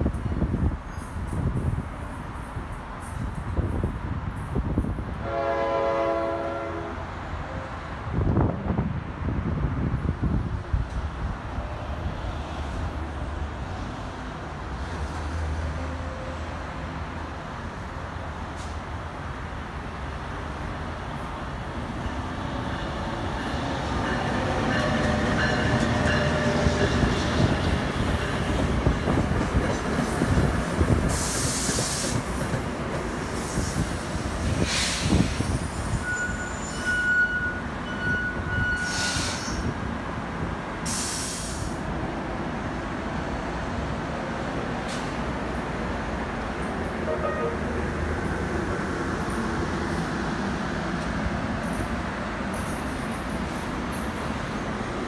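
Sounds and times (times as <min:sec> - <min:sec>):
train rumble: 0:00.0 - 0:55.0
train wheels squealing on rails: 0:00.1 - 0:05.0, 0:22.0 - 0:39.8, 0:40.8 - 0:41.8, 0:51.6 - 0:54.7
short hissing bursts: 0:40.9 - 0:41.8.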